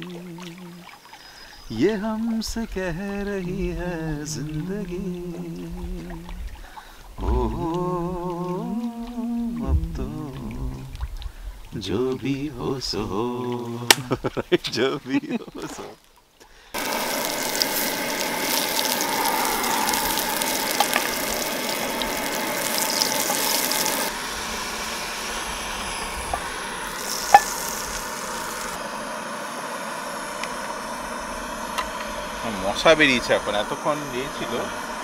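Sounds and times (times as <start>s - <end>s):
food sizzling in a pan: 16.7s - 35.0s
sharp ticks and pops: 16.8s - 24.1s, 26.3s - 28.8s.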